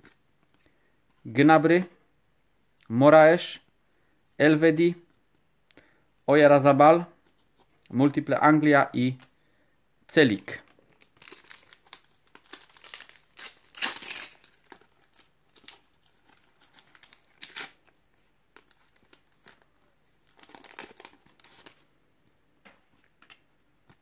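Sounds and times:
plastic wrapper tearing and crinkling: 10.7 - 21.8.

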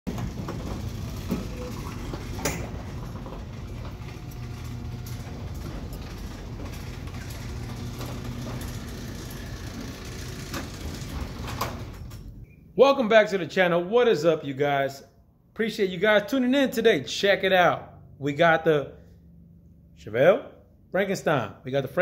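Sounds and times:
garage door clicks and clunks: 0.1 - 12.5
garage door opener rumbling: 0.1 - 12.5.

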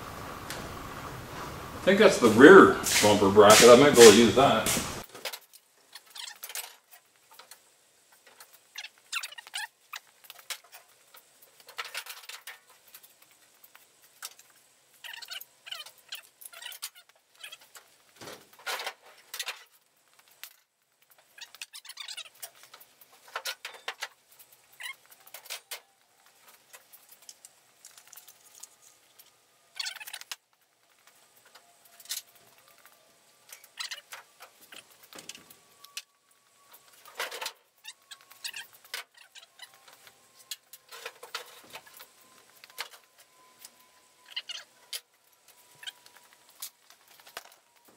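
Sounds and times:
car parts scraping and clinking: 10.0 - 47.9.

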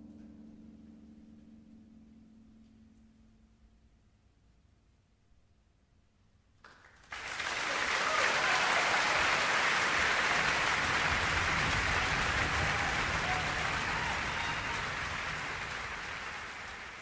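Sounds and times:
audience applause: 6.7 - 17.0.

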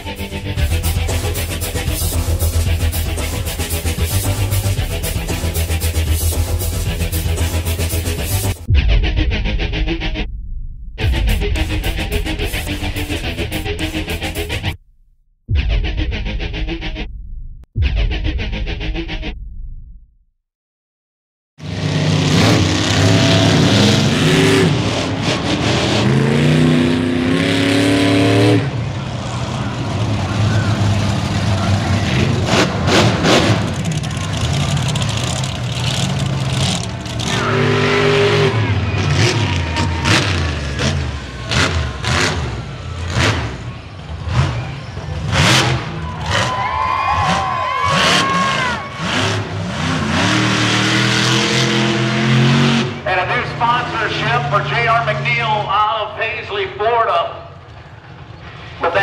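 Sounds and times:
monster truck engine revving: 0.0 - 8.7, 21.6 - 56.2
low engine rumble: 28.6 - 47.6.

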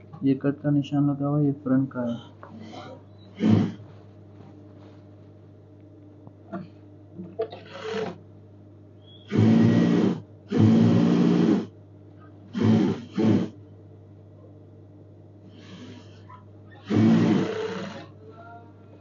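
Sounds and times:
sewing machine stitching: 7.5 - 8.2, 9.3 - 11.7, 12.5 - 13.5, 16.8 - 18.1.

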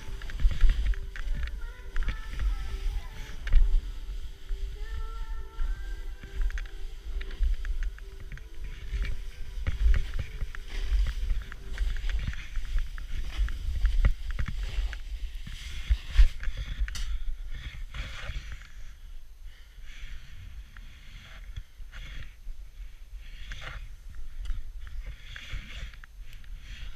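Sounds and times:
wind rumble on microphone: 0.0 - 18.9.

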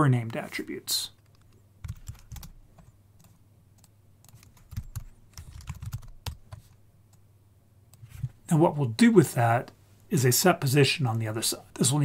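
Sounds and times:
computer keyboard typing: 1.2 - 6.8.

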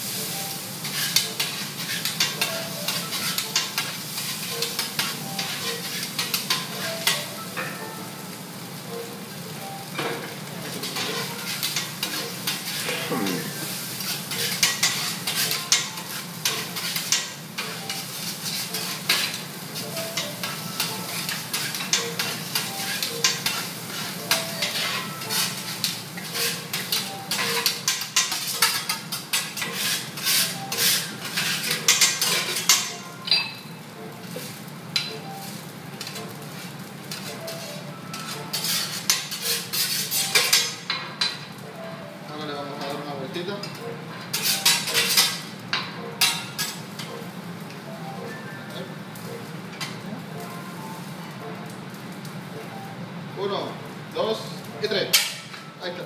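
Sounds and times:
food sizzling: 0.0 - 56.0
metal spatulas clacking on griddle: 20.2 - 23.7, 24.3 - 33.5, 38.1 - 41.4, 43.6 - 46.8.

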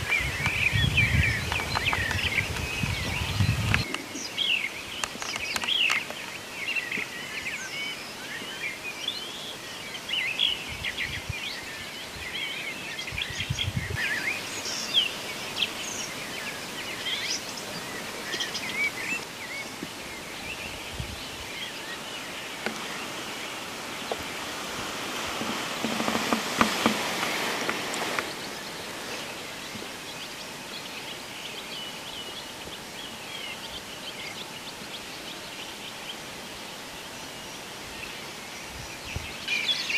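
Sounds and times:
songbirds chirping and trilling: 0.0 - 39.9
steady outdoor hiss: 0.0 - 39.9
rustling: 22.6 - 30.0.

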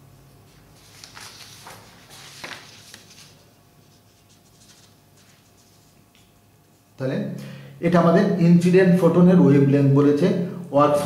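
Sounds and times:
paper rustling and sliding: 0.5 - 6.3.

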